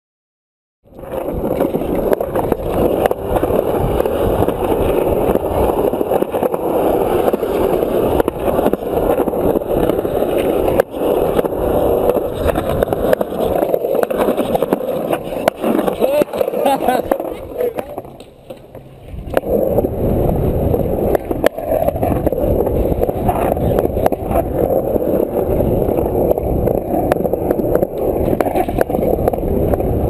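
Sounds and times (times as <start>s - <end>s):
skateboard wheels rolling on concrete: 0.8s - 30.0s
skateboard clacks: 0.9s - 30.0s.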